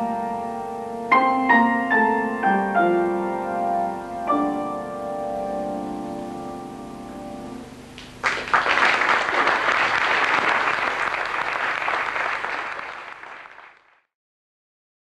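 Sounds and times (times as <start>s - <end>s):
piano chord: 0.0s - 8.0s
audience applause: 8.0s - 14.1s.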